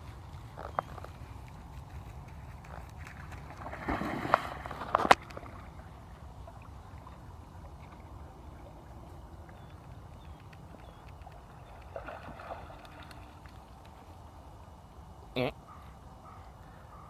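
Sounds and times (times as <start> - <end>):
dog splashing into water: 3.1 - 5.6.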